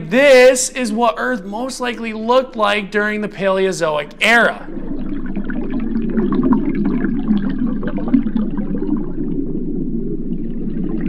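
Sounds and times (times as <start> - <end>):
bubbly crackles: 3.6 - 11.0
underwater rush of water: 4.3 - 11.0.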